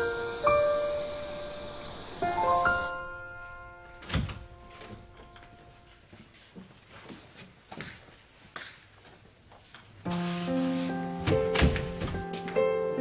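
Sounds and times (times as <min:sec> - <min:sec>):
piano chord: 0:00.0 - 0:06.0, 0:10.1 - 0:13.0
door opening with a clunk: 0:04.0 - 0:05.0, 0:11.2 - 0:12.4
footsteps and shuffles: 0:04.5 - 0:12.7.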